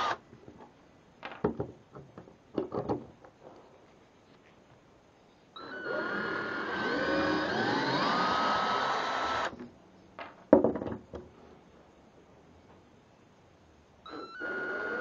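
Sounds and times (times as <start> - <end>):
cordless drill driving screw into wood: 0.0 - 0.2, 5.6 - 9.6, 14.1 - 15.0
knocks: 10.2 - 11.3.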